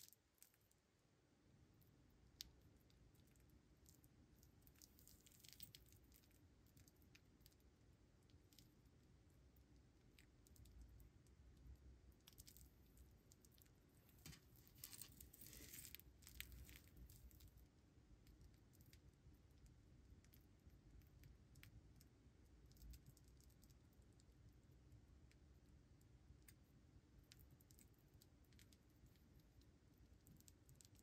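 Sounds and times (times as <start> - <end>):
gloves rustling on metal bracelet: 14.1 - 16.0.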